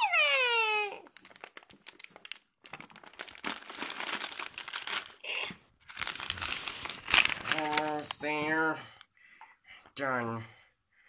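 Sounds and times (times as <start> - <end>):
plastic crinkling and rustling: 0.6 - 8.7.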